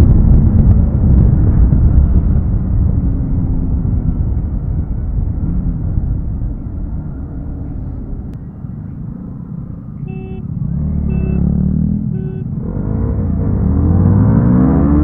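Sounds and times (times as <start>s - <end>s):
wind rush: 0.0s - 8.4s
motorcycle engine rumble: 0.0s - 13.8s
short beeps: 10.0s - 11.5s, 12.1s - 12.5s
motorcycle engine revving: 10.0s - 15.0s.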